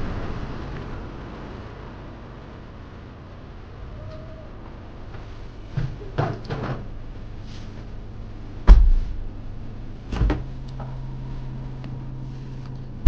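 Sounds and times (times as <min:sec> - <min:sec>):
fridge door knock: 0:08.7 - 0:09.1
fridge door thump: 0:08.7 - 0:09.2.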